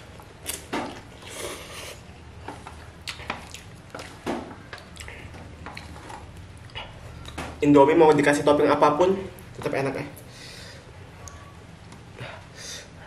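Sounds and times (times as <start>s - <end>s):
slurping noodles: 1.2s - 2.0s
chewing: 2.7s - 7.4s.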